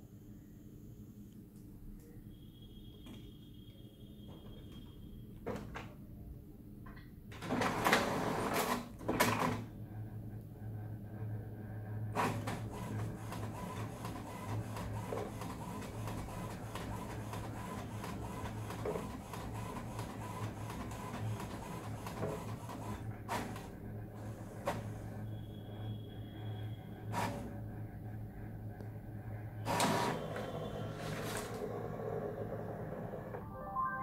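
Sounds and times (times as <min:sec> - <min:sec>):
printer motor whir: 0:12.1 - 0:33.4.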